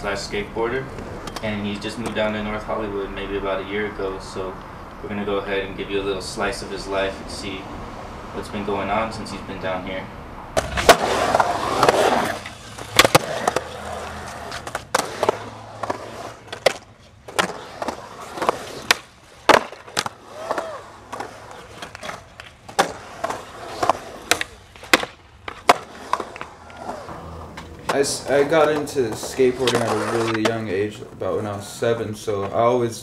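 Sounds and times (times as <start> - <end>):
skateboard wheels rolling on concrete: 0.0 - 33.0
skateboard clacking on concrete: 10.6 - 27.1, 27.9 - 30.7.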